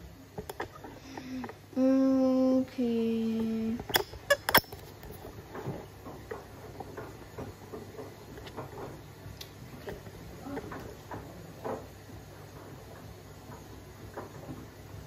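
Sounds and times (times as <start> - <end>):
long steady low tones: 1.0 - 3.9
washing machine load tumbling: 1.0 - 15.0.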